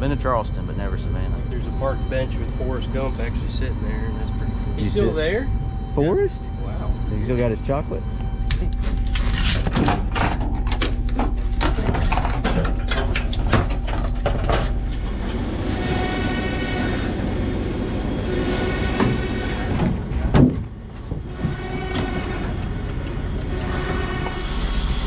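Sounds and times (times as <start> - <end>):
constant low hum: 0.0 - 25.0
metal rattling and clanking: 8.8 - 15.7
loud clunk: 19.0 - 22.3.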